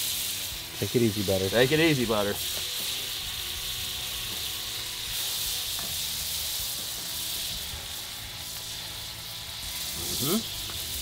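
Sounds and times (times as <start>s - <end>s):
butter sizzling on a griddle: 0.0s - 11.0s.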